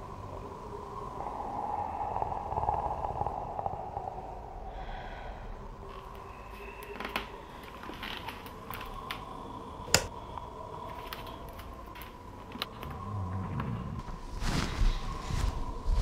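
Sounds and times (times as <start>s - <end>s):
faint clicks and creaks: 5.9s - 14.2s.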